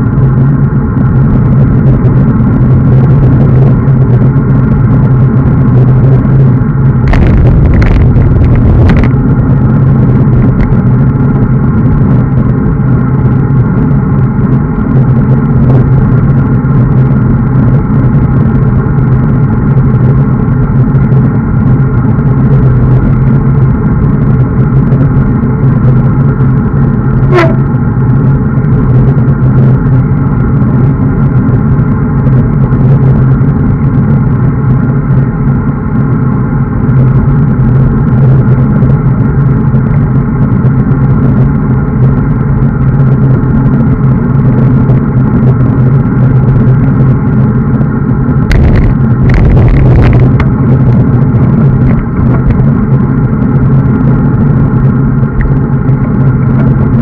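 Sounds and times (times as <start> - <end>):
road noise: 0.0 - 57.0
wind roar: 0.0 - 57.0
brief squeak dropping in pitch: 27.3 - 27.7.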